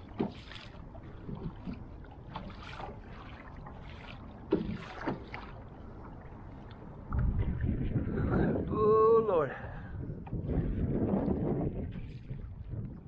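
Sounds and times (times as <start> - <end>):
water slapping against kayak hull: 0.0 - 8.8, 10.2 - 13.0
low rumble: 5.9 - 9.0.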